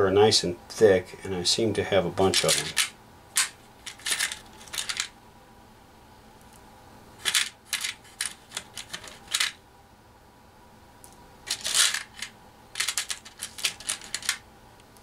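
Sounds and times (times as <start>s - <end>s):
metal washers clinking: 2.4s - 5.1s, 11.5s - 14.4s.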